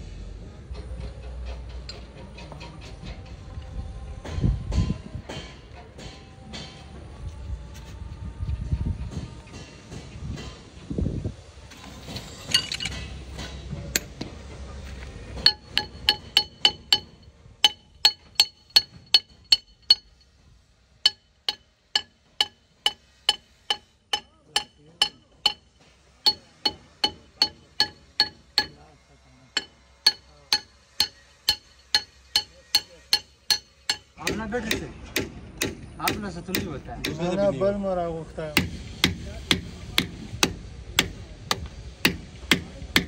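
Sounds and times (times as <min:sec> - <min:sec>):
hammer tapping on steel: 0:15.4 - 0:20.4, 0:21.0 - 0:28.9, 0:29.5 - 0:37.5, 0:38.6 - 0:43.0.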